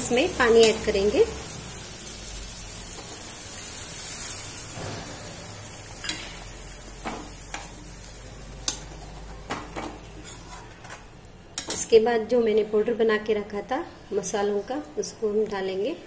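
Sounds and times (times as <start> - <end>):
sauce sizzling in a pan: 0.0 - 10.6.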